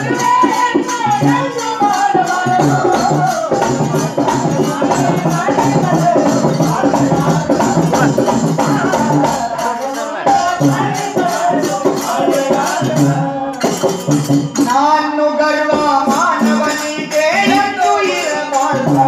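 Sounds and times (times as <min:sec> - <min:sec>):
jingling percussion beat: 0:00.0 - 0:19.0
man singing a devotional song: 0:00.0 - 0:19.0.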